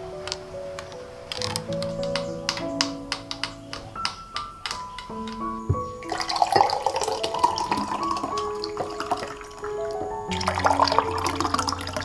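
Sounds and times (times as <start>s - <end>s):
background music: 0.0s - 12.0s
juice pouring into glass mugs: 6.0s - 12.0s.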